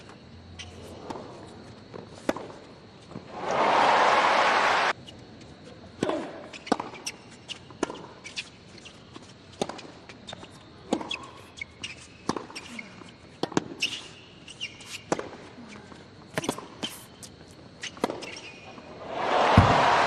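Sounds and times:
sneaker squeaks: 0.0 - 2.5, 5.0 - 19.0
crowd applause: 3.3 - 4.9, 19.0 - 20.0
ball bouncing on hard court: 19.5 - 19.9.

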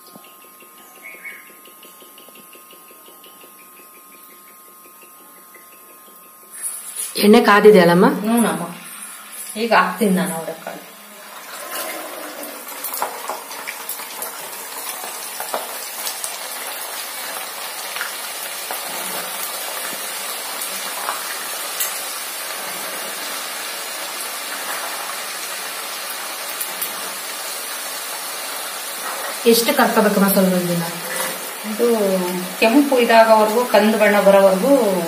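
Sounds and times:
beans sizzling in hot oil: 5.7 - 7.4, 8.3 - 35.0
oil popping and crackling: 11.3 - 30.0.

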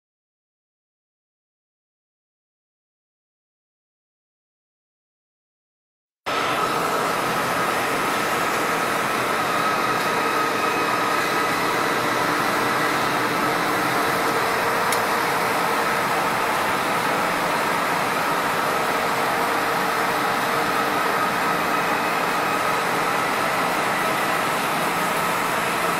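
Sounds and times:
lathe machine hum: 6.3 - 25.9.

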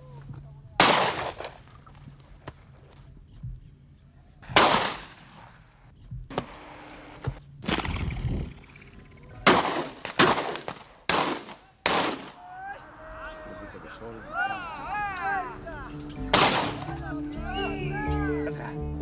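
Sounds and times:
shotguns firing: 0.8 - 1.7, 4.4 - 5.5, 9.4 - 12.4, 16.3 - 16.9.

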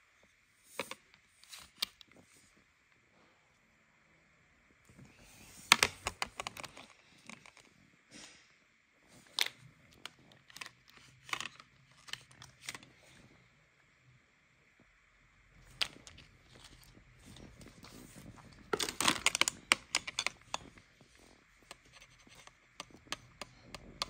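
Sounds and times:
plastic toy pieces clicking: 18.8 - 20.6.

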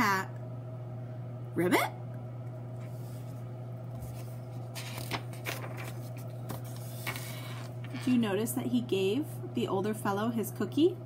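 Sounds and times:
steady low hum: 0.0 - 11.0
book pages turning: 2.8 - 8.1.

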